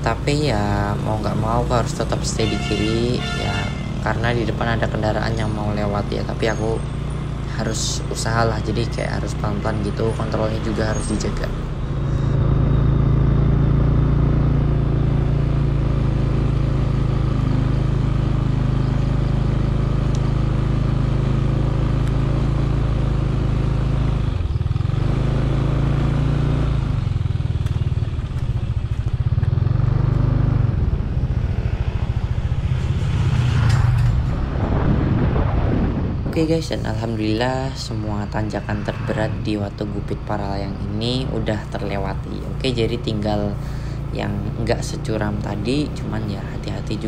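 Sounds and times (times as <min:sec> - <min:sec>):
vehicle engine running: 0:00.0 - 0:47.0.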